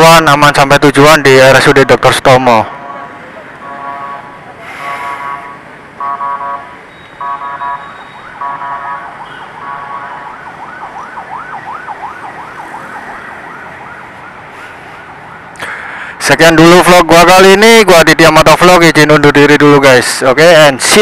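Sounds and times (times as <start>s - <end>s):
ambulance siren: 2.6s - 15.6s.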